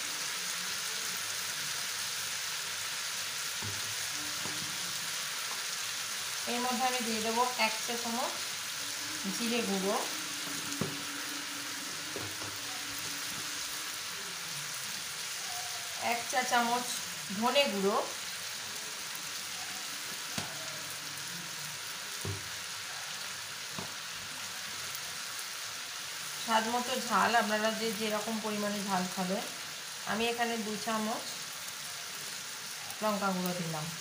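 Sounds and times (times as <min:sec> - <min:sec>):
food sizzling in a pan: 0:00.0 - 0:34.0
metal spatula knocking on pan: 0:10.8 - 0:11.0, 0:12.1 - 0:13.4.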